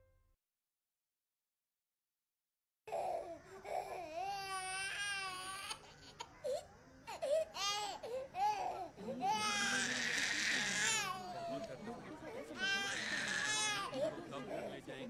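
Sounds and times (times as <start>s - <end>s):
toddler crying: 2.9s - 11.6s, 12.6s - 14.0s.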